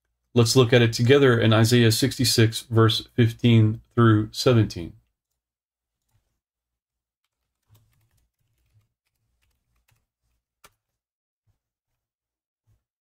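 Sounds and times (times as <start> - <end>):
keyboard typing: 7.2 - 10.8.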